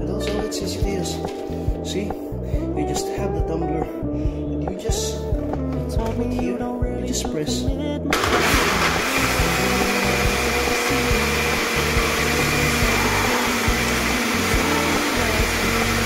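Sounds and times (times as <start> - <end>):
blender motor whirring: 8.1 - 16.0.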